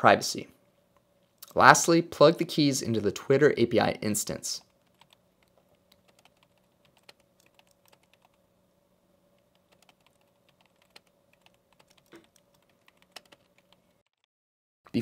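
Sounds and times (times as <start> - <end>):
typing on computer keyboard: 4.8 - 8.4, 9.4 - 14.3.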